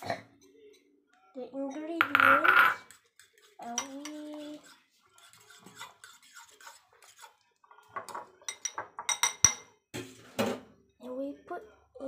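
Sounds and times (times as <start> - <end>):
spoon clinking against bowl: 1.7 - 7.2, 8.0 - 9.7
spoon scraping in a bowl: 1.7 - 10.4.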